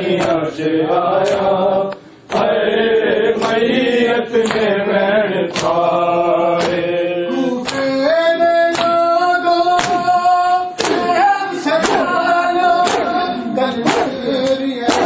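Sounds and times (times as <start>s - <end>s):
men singing a lament: 0.0s - 15.0s
hands striking chests: 10.8s - 11.2s, 11.8s - 12.2s, 12.8s - 15.0s.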